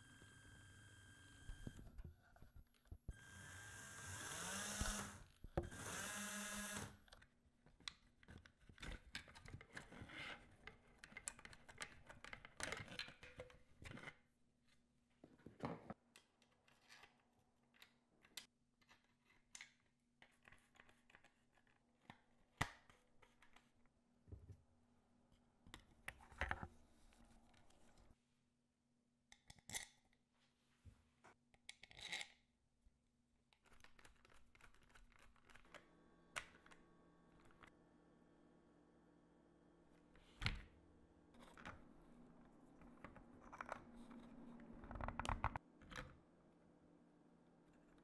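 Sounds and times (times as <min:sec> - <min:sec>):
small electric motor whining: 0:03.1 - 0:07.0.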